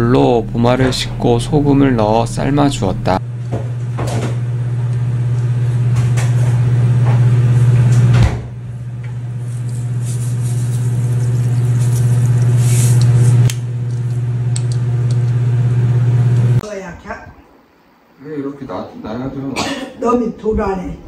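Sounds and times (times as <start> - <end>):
loud low hum: 0.0 - 16.6
salt sprinkling hiss: 9.4 - 15.3
click: 13.0 - 15.4.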